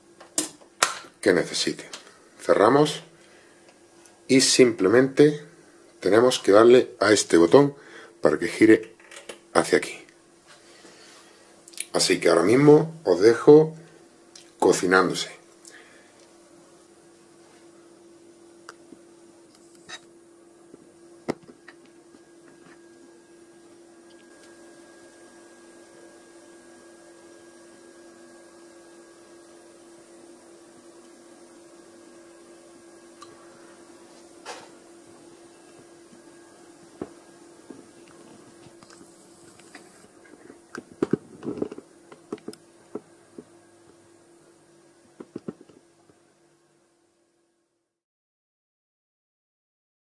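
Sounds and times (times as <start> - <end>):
food steamer humming: 15.6 - 47.0
small clicks and knocks: 40.8 - 43.1.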